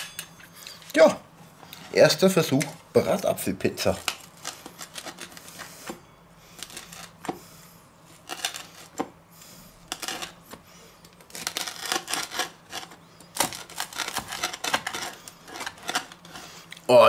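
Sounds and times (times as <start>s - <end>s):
knife cutting crispy crust: 3.8s - 5.6s, 6.5s - 7.4s, 8.1s - 9.1s, 9.8s - 16.5s.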